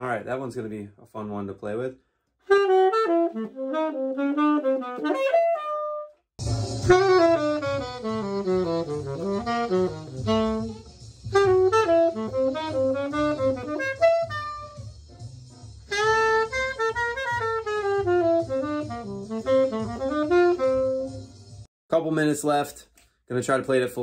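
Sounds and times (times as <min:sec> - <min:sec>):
tenor saxophone playing bebop: 0:02.4 - 0:21.4.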